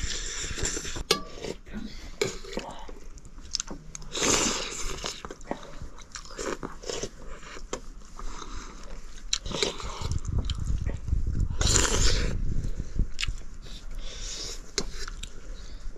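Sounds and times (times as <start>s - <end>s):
chewing and biting noodles: 3.2s - 15.4s
low rumble: 8.4s - 14.4s.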